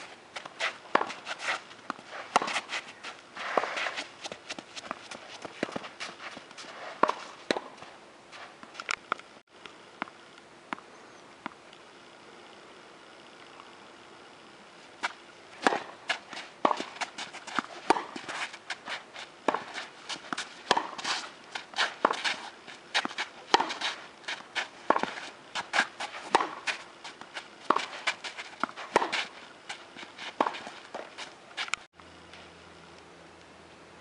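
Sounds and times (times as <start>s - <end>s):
tennis ball bouncing: 0.0s - 7.9s, 15.0s - 31.7s
footsteps on court: 0.0s - 9.1s, 15.0s - 32.5s
racket hitting tennis ball: 0.0s - 9.2s, 15.0s - 31.8s.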